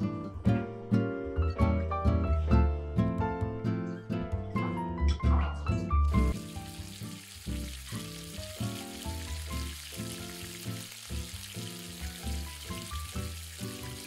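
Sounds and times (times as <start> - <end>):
background music: 0.0 - 14.0
oil sizzling and bubbling: 6.1 - 14.0.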